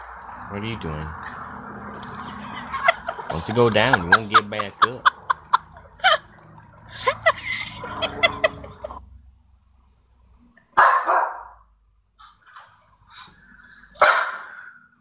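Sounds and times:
clucking calls: 0:01.2 - 0:09.0
small dog barking: 0:10.8 - 0:11.6, 0:14.0 - 0:14.7.

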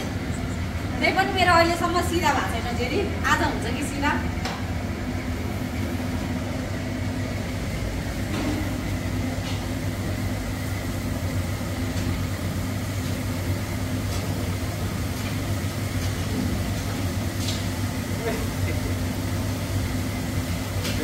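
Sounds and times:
low mechanical hum: 0:00.0 - 0:21.0
batter frying in hot oil: 0:04.6 - 0:21.0.

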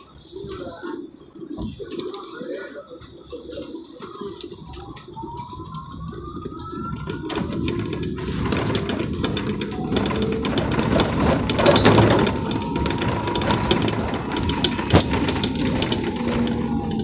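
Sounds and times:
bus body rattling: 0:04.6 - 0:17.0
bus road noise: 0:04.6 - 0:17.0.

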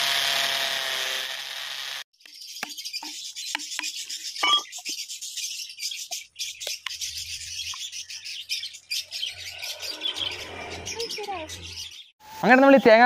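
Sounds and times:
birds chirping: 0:02.2 - 0:13.0.

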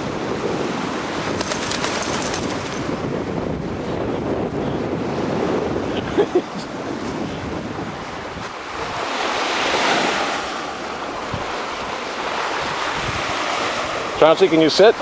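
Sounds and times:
wind buffeting microphone: 0:00.0 - 0:14.3
waves washing onto shore: 0:00.0 - 0:15.0.

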